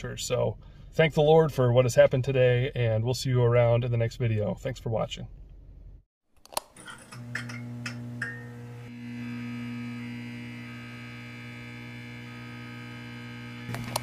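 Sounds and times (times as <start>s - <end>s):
electrical neon buzz: 6.6s - 14.0s
sharp crackling clicks: 13.7s - 14.0s.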